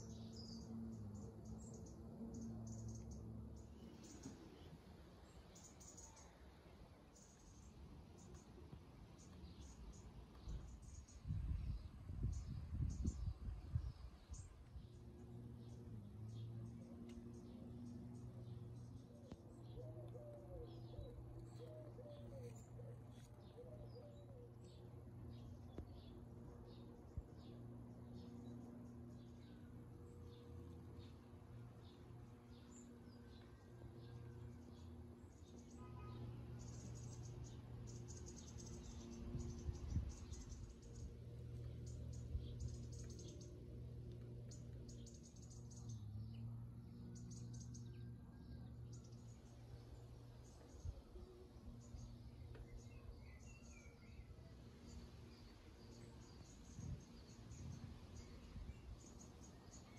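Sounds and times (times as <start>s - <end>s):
low steady hum: 0.0s - 59.9s
pigeon cooing: 19.7s - 24.6s
faint small bird chirps: 35.5s - 41.1s.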